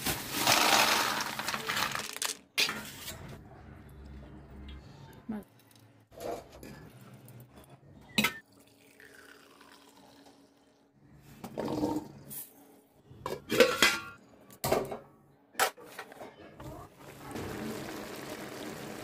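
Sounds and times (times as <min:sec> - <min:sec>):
dishes clattering: 0:13.2 - 0:15.0.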